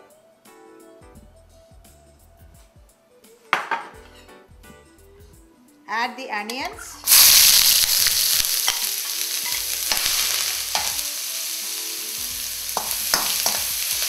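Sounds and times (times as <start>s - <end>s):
onions sizzling in oil: 7.0s - 14.0s.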